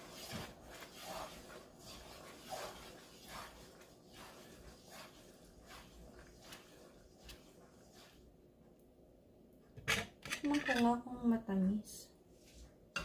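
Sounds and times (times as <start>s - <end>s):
thick mixture bubbling: 0.0s - 8.6s.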